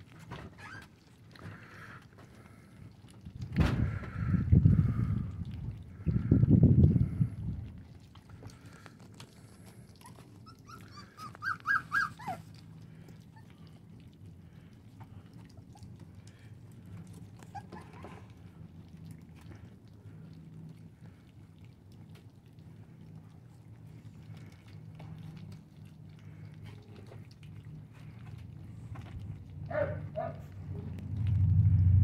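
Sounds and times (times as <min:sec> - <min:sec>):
puppies lapping food: 0:00.0 - 0:32.0
puppies whimpering: 0:00.4 - 0:01.9, 0:08.4 - 0:19.8.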